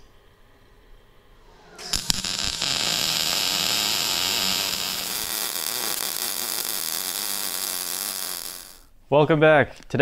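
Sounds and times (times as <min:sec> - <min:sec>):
welding arc hissing crackle: 0:01.7 - 0:08.9.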